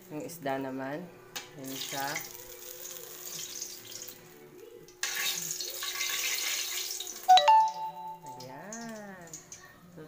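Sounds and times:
fish sizzling in hot oil: 1.6 - 4.3, 5.0 - 7.3.

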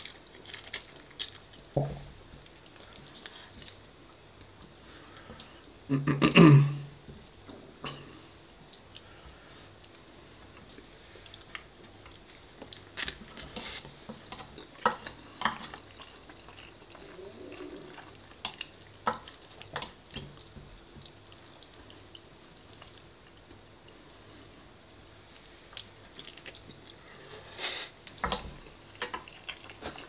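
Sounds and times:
chewing and mouth sounds: 0.0 - 1.6, 9.8 - 24.0, 24.8 - 27.1, 28.3 - 30.0.

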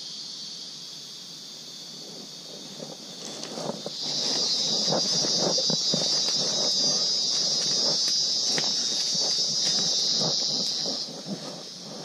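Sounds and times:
high-pitched insect drone: 0.0 - 12.0
soft footsteps on trail: 2.1 - 12.0.

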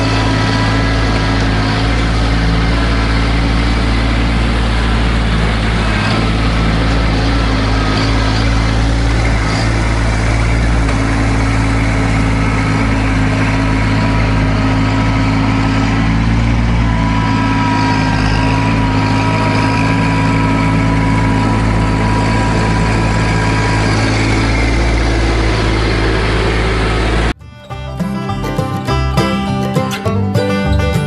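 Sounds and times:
banjo music: 0.0 - 14.6, 27.3 - 31.0
tractor engine running: 0.0 - 31.0.

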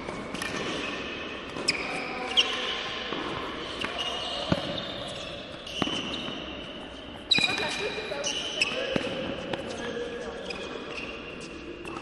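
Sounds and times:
tennis balls bouncing on court: 0.0 - 2.5, 3.1 - 6.6, 7.3 - 10.0
tennis balls struck by rackets: 3.1 - 6.4, 8.9 - 9.8.

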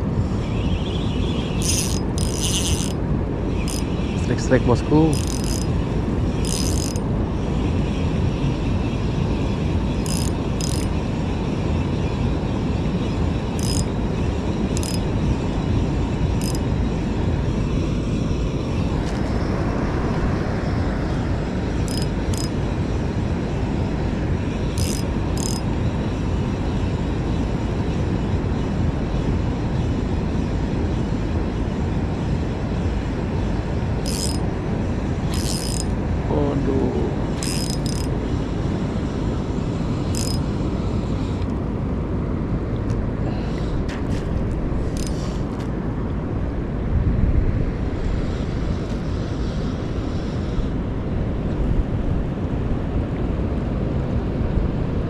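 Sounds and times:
wind and water rushing: 0.0 - 55.0
fishing reel clicks: 1.6 - 3.0, 3.6 - 3.9, 5.0 - 5.7, 6.4 - 7.0, 10.0 - 11.0, 13.5 - 13.9, 14.8 - 15.0, 16.4 - 16.6, 21.8 - 22.6, 24.7 - 25.7, 34.0 - 34.4, 35.3 - 35.9, 37.4 - 38.1, 40.1 - 40.4, 45.0 - 45.4.

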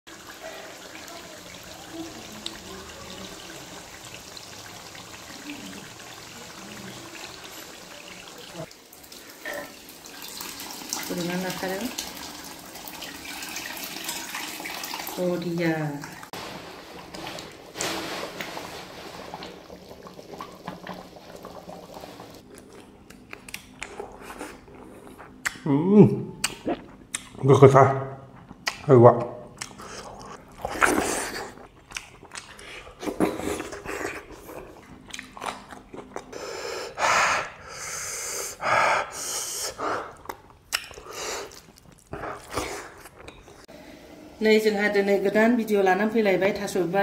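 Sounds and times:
thick curry boiling: 0.1 - 15.2, 16.3 - 22.6.

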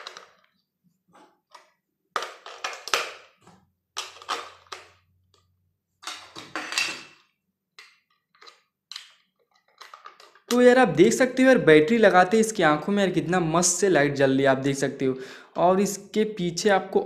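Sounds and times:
plastic rattles: 0.0 - 0.6, 1.2 - 7.2, 7.8 - 10.6.

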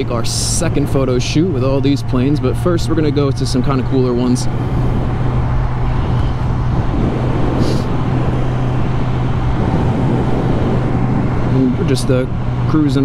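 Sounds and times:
wind noise on microphone: 3.7 - 13.0.

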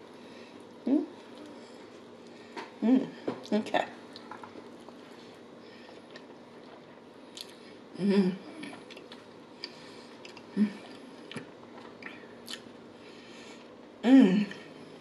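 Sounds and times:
woman humming mmm: 0.9 - 1.2, 8.0 - 8.7, 14.0 - 14.7
person chewing food: 4.1 - 7.9, 8.5 - 12.8
wet mouth clicks: 8.6 - 12.7.

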